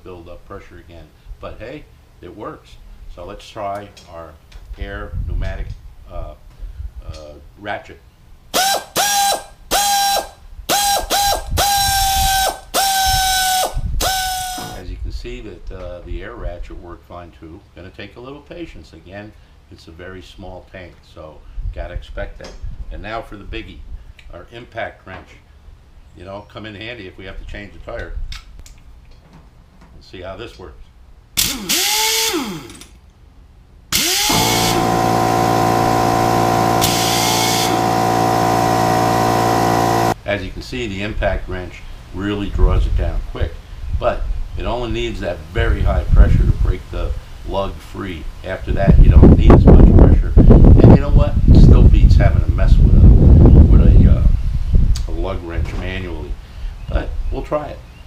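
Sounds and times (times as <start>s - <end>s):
pneumatic air ratchet whine: 8.5s - 14.8s, 31.4s - 33.0s, 33.9s - 40.2s.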